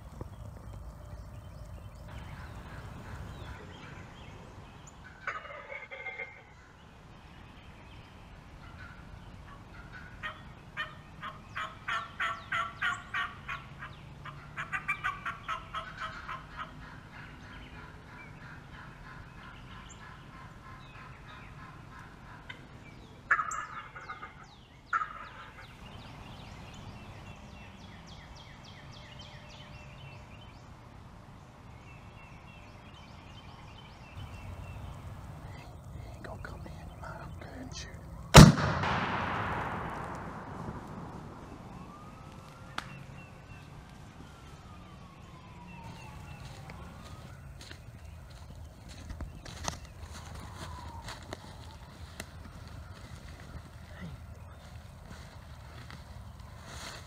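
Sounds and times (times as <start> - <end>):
loud turkey call: 5.0 - 6.7, 8.6 - 22.6, 23.3 - 25.8
turkey clucks and yelps: 5.0 - 6.7, 8.6 - 22.7, 23.3 - 25.7.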